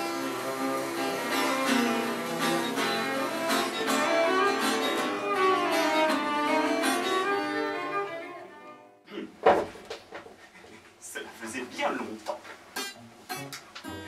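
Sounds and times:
acoustic guitar plucking: 0.0 - 8.9, 12.3 - 14.0
cello bowed notes: 0.0 - 8.9.

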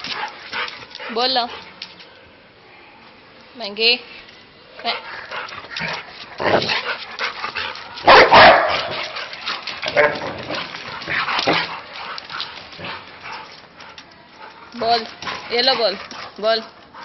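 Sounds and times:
dog barking: 8.1 - 9.0.

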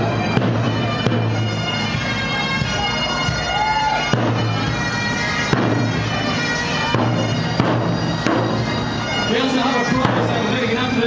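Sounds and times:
bass drum strikes: 0.0 - 2.8, 3.6 - 9.0
bagpipes playing: 0.0 - 11.0.

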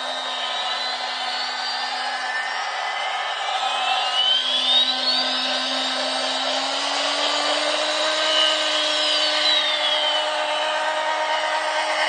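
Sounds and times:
thin high whine: 0.0 - 12.0
toy train motor whirring: 4.4 - 12.0.

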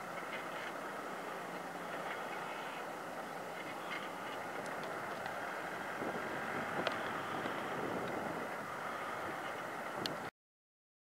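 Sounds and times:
tractor diesel engine under load: 0.0 - 10.3.

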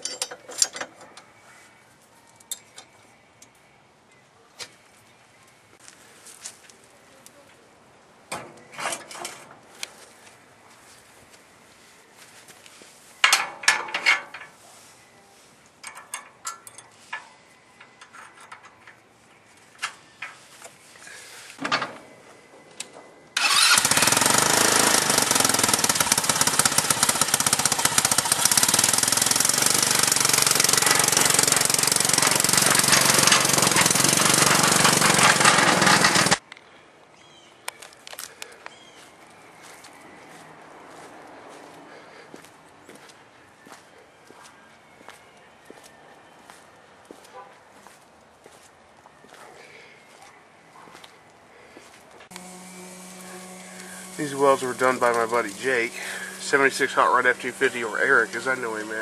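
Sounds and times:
small engine chattering: 23.4 - 36.4, 52.3 - 59.0.

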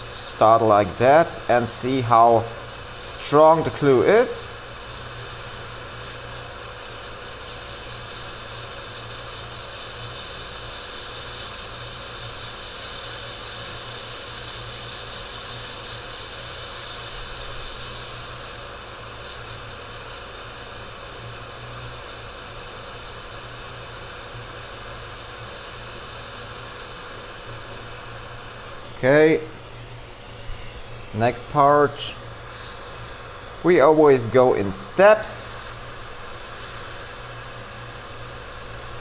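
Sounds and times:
fan whooshing: 0.0 - 39.0
low electrical hum: 0.0 - 39.0.

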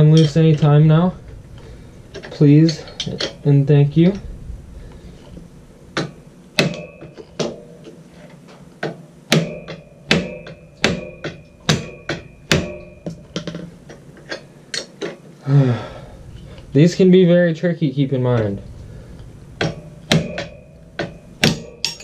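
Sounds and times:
mallet striking metal wrench: 6.0 - 7.9, 8.8 - 15.1, 19.6 - 22.0.

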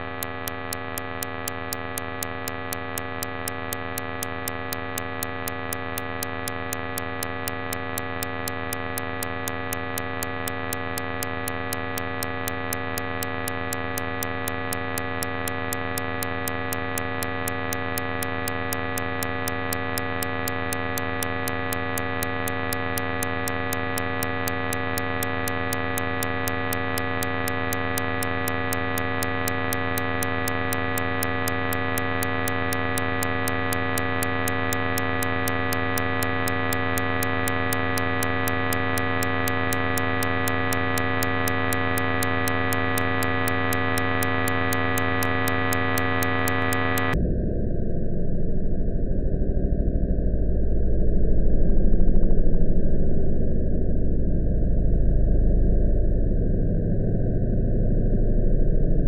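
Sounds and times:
fast regular ticking clicks: 0.0 - 47.2
electronic drone of sustained tones: 0.0 - 47.5.

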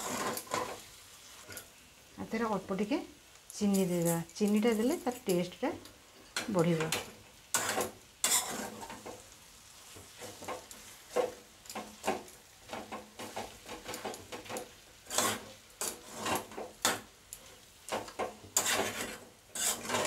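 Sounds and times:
spatula scraping a pan: 0.0 - 1.7, 6.2 - 20.0
soft sizzle: 0.0 - 20.0.

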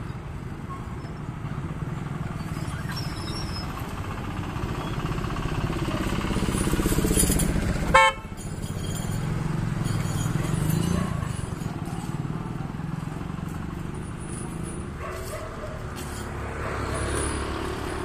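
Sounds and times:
vehicle engine running: 1.2 - 18.0
car horn honk: 7.9 - 8.4.

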